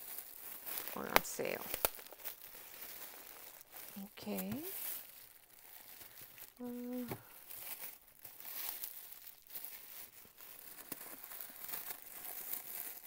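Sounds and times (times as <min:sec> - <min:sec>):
plastic bag crinkling: 0:00.0 - 0:13.0
person humming: 0:06.6 - 0:07.2.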